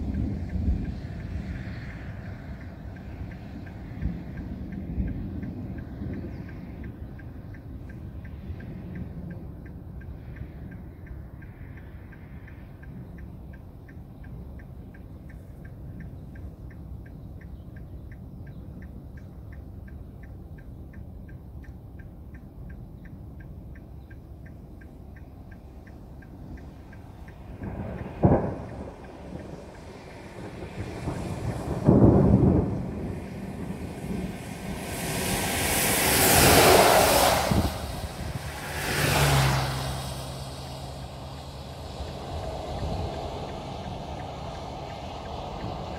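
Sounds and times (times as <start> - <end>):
light regular ticking: 0.0 - 33.7
road and tyre noise in car: 0.0 - 45.9
thunder rumble: 0.0 - 45.9.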